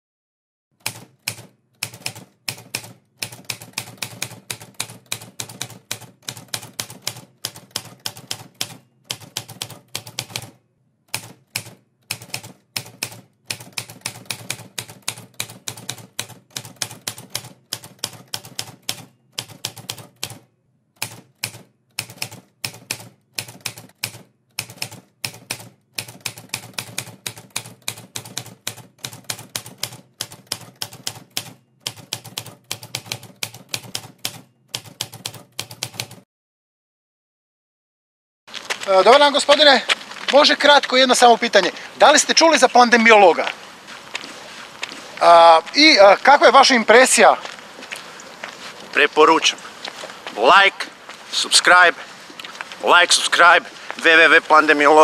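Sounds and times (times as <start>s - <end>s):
typewriter keys clacking: 0.8s - 36.2s.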